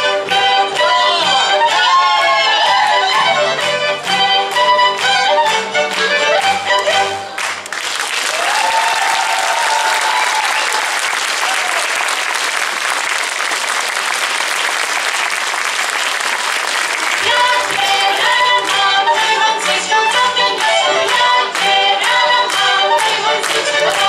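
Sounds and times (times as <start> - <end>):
fiddle tune: 0.0 - 7.4, 17.2 - 24.0
folk band playing: 0.0 - 7.7, 17.0 - 24.0
audience applauding: 1.6 - 19.8.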